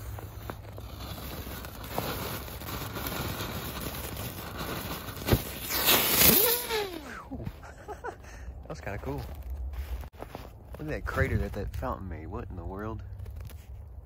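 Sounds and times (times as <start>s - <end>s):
firework fountain hissing and crackling: 0.0s - 7.1s.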